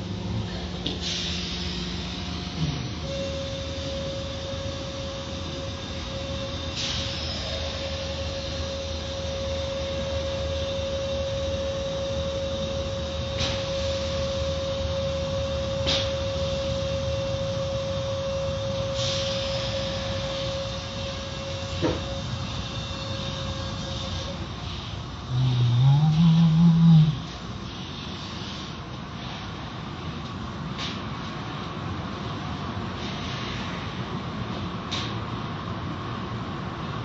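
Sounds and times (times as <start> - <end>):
constant mid-pitched tone: 0.0 - 28.1.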